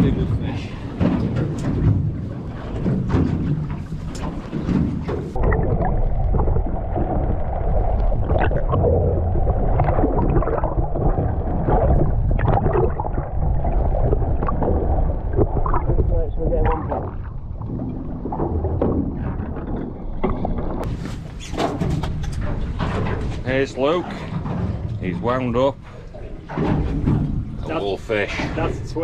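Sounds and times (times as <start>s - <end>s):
muffled underwater rush and gurgle: 0.0s - 29.0s
sea noise: 0.0s - 29.0s
wind: 0.0s - 29.0s.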